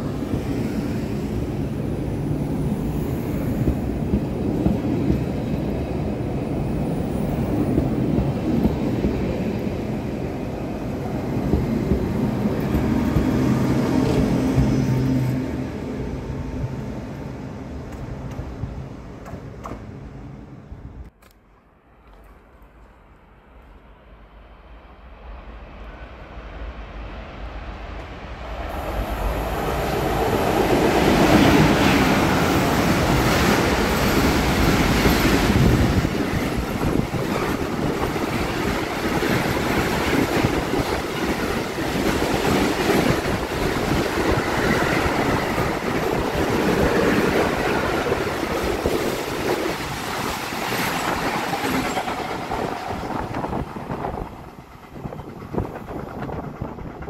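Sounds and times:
freight train rumble: 0.0s - 21.1s, 24.0s - 57.0s.

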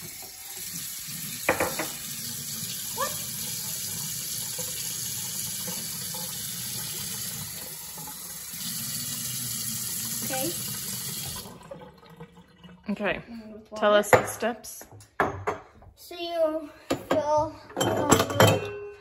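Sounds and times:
water splashing into sink: 0.0s - 13.1s
faucet water running: 0.0s - 13.4s.

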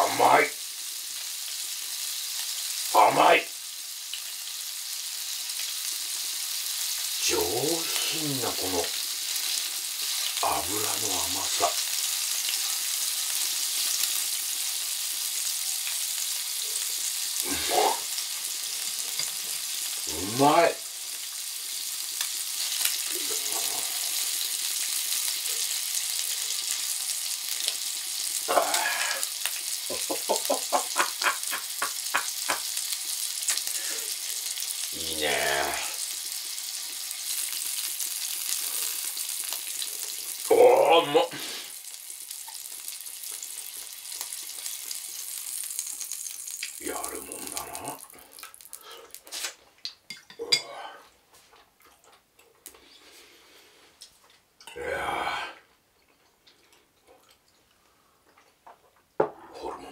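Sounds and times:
offal sizzling in a grill pan: 0.0s - 49.6s
short wordless vocal sounds: 28.5s - 29.3s, 35.0s - 36.0s, 50.4s - 51.1s, 54.7s - 55.7s.

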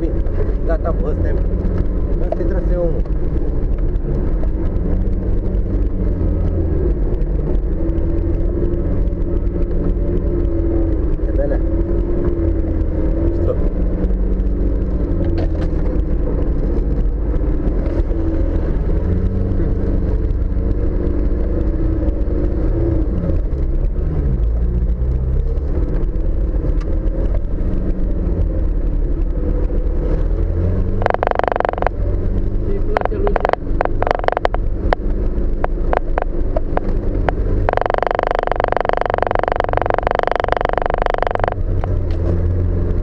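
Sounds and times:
vehicle engine running under load: 0.0s - 43.0s
knocks from bumps: 31.0s - 32.0s, 33.0s - 35.0s, 35.6s - 41.6s.

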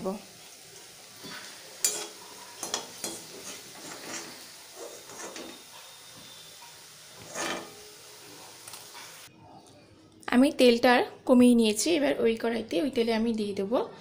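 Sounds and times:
food sizzling in hot oil: 0.0s - 9.3s
metal spoon scraping a pan: 1.2s - 9.3s.

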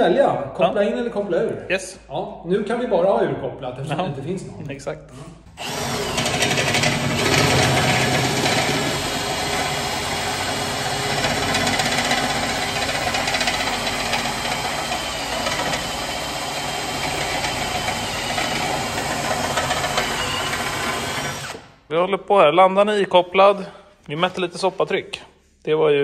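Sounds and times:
impact wrench hammering: 5.6s - 21.7s.

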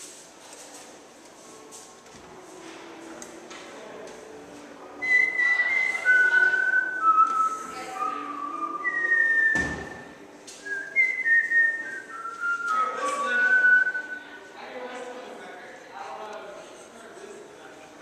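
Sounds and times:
person whistling a tune: 5.0s - 14.2s.

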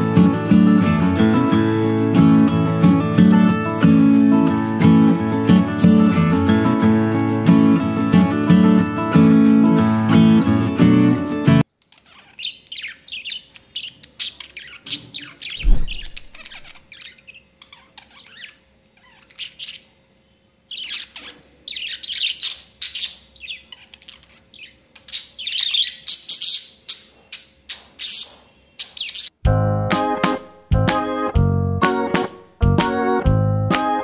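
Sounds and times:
budgie squawking and chirping: 11.9s - 20.0s, 20.7s - 29.4s
loud low thump: 15.6s - 16.5s.

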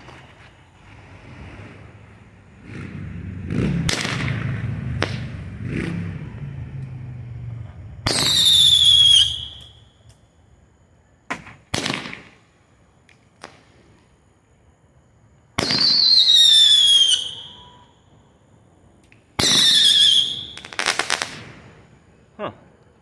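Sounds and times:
firework whistle: 8.0s - 10.2s, 15.6s - 18.4s, 19.4s - 21.8s
roman candle spray and shots: 11.3s - 12.4s, 19.1s - 21.8s.

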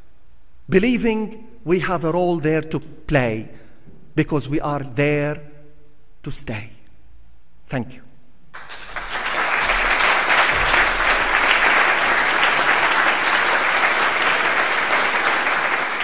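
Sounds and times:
audience applauding: 8.6s - 16.0s.

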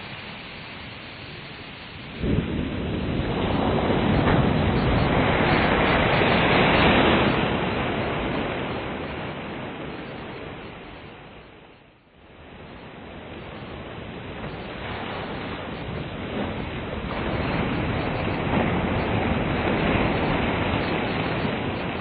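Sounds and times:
waves breaking on shore: 0.0s - 22.0s.

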